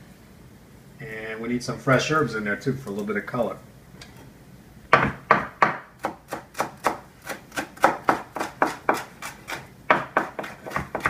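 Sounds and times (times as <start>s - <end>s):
knife chopping on wooden board: 4.9s - 11.0s.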